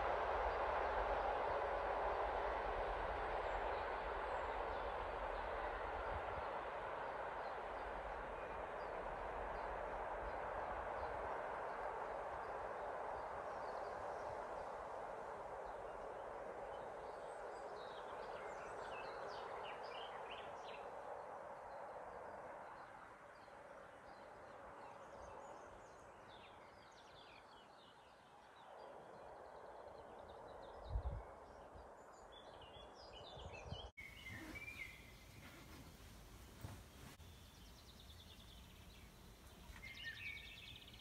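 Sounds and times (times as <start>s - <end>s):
train rumble: 0.0s - 17.5s, 34.0s - 41.0s
small birds chirping: 31.8s - 41.0s.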